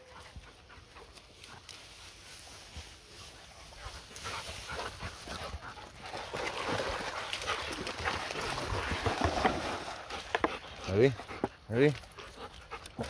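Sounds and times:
dog panting and whining: 0:10.1 - 0:13.0.

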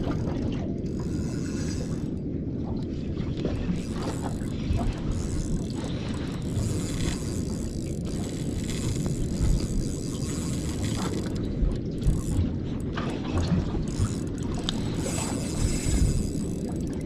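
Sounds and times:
wind buffeting microphone: 0:00.0 - 0:17.0
fishing reel cranking: 0:00.9 - 0:02.2, 0:03.7 - 0:11.4, 0:12.0 - 0:12.6, 0:13.8 - 0:17.0.

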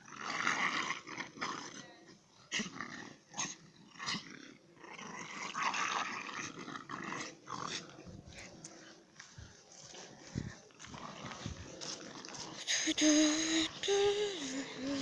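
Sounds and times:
dogs growling: 0:00.0 - 0:08.9, 0:10.7 - 0:12.8.

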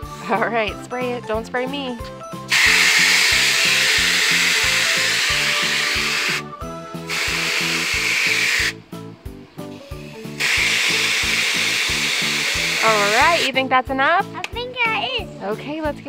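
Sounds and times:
hose nozzle spraying into water: 0:02.5 - 0:08.8, 0:10.1 - 0:13.5.

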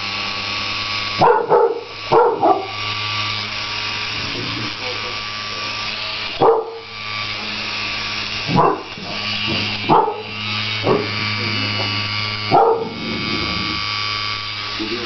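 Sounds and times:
small electric fan motor buzzing: 0:00.0 - 0:15.0
dog barking: 0:01.2 - 0:02.8, 0:06.4 - 0:06.8, 0:08.5 - 0:09.2, 0:09.9 - 0:11.1, 0:12.5 - 0:13.0.

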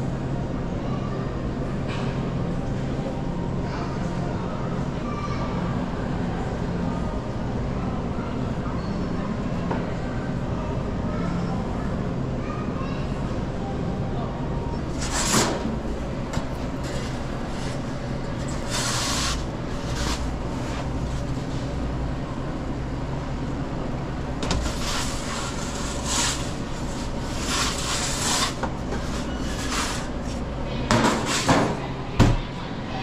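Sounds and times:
kitchen equipment humming: 0:14.6 - 0:32.4.

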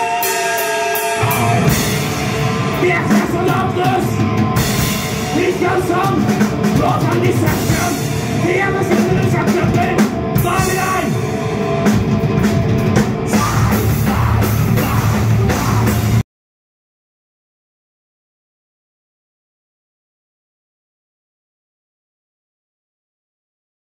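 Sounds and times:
distorted electric guitar: 0:00.0 - 0:16.2
drum kit: 0:00.0 - 0:16.2
electric bass: 0:01.2 - 0:16.2.

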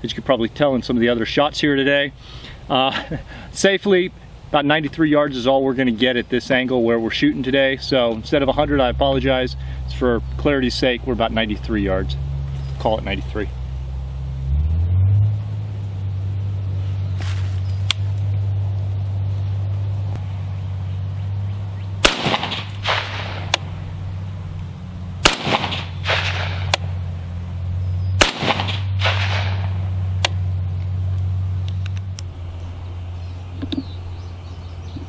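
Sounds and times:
steady low hum: 0:00.0 - 0:35.0
gunshot echo: 0:22.0 - 0:23.7, 0:25.2 - 0:26.9, 0:28.2 - 0:30.4
rifle shots: 0:22.0 - 0:23.8, 0:25.2 - 0:26.9, 0:28.2 - 0:30.4.

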